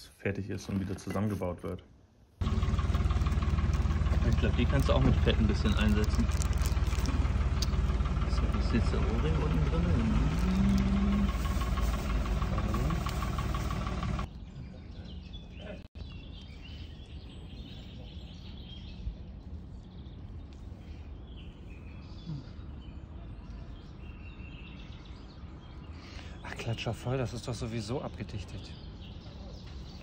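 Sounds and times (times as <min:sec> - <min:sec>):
engine running: 0:02.4 - 0:14.3
birds chirping: 0:02.4 - 0:30.0.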